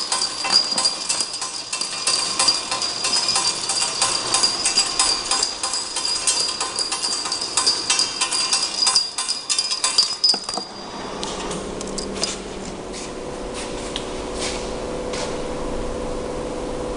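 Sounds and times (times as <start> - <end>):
glass vials clinking: 0.0 - 10.8
machine high whine: 0.0 - 12.6
machine steady hum: 0.0 - 16.9.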